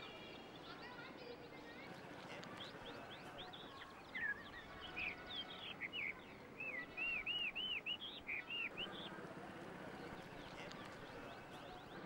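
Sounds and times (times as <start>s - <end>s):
songbird chirping: 0.0s - 9.2s.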